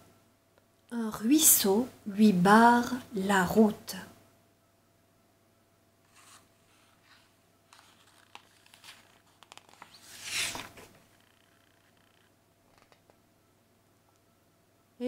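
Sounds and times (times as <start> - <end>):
page turning swish: 6.1 - 13.0
paper rustling: 6.1 - 13.2.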